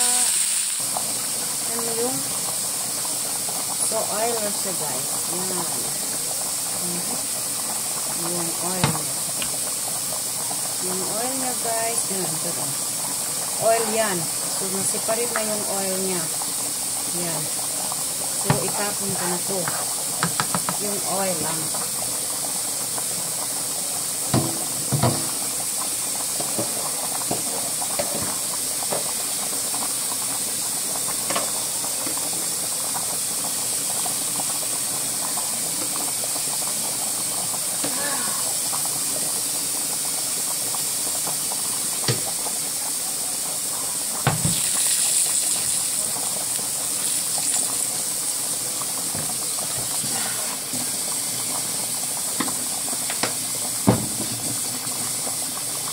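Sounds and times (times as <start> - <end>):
boiling water steam hiss: 0.0 - 55.9
skillet knocking on stove: 8.8 - 9.6, 18.5 - 20.8, 24.3 - 25.5, 42.0 - 42.4, 44.2 - 44.7, 52.4 - 54.7.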